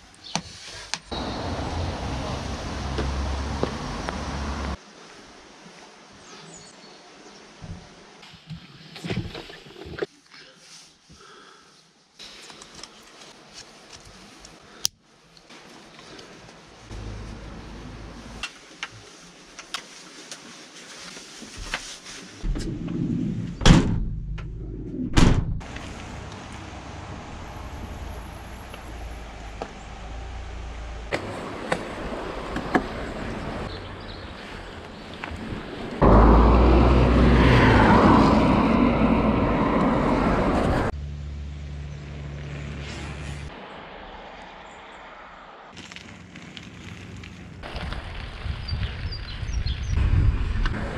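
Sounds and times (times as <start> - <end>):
bike tyre noise on trail: 25.6 - 41.0, 41.8 - 50.9
wind rush: 35.2 - 40.9, 47.6 - 50.9.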